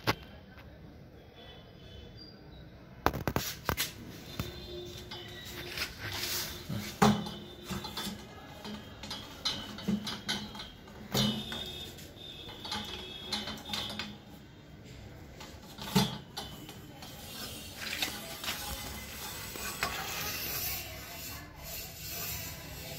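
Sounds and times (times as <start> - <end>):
metal clinks and knocks: 5.0 - 14.4.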